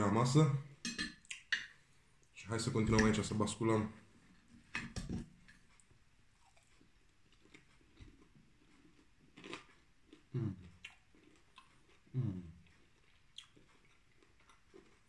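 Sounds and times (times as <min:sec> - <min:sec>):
man chewing food: 0:04.1 - 0:15.0
man humming mmm: 0:10.3 - 0:10.8, 0:12.1 - 0:12.6.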